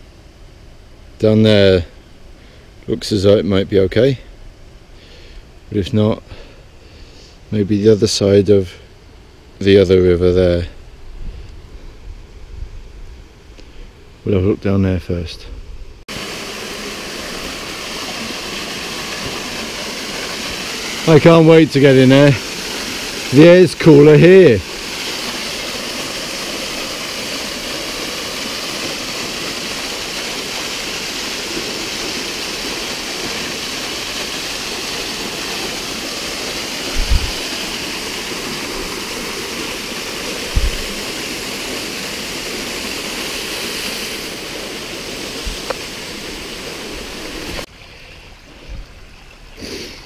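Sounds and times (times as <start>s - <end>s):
waterfall splashing into pool: 16.1s - 47.7s.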